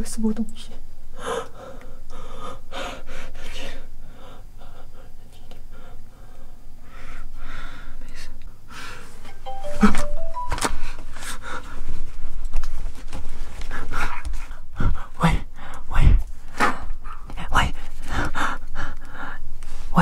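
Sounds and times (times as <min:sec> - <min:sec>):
person panting hard: 0:13.7 - 0:16.2.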